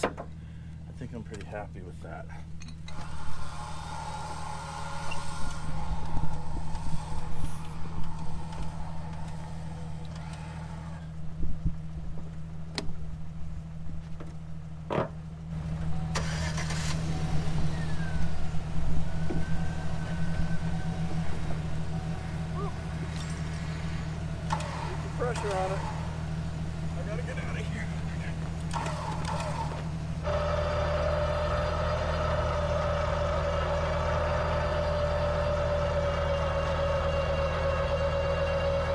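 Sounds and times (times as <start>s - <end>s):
vehicle engine idling: 0.0s - 38.9s.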